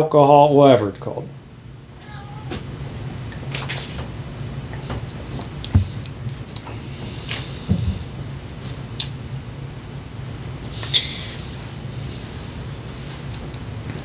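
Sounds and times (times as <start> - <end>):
steady low hum: 0.0 - 14.0
swallowing thumps: 4.8 - 6.1.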